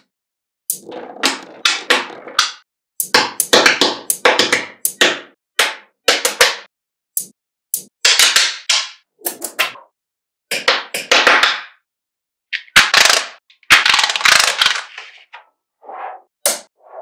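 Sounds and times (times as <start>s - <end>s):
magnetic balls snapping and clattering: 12.6s - 15.0s.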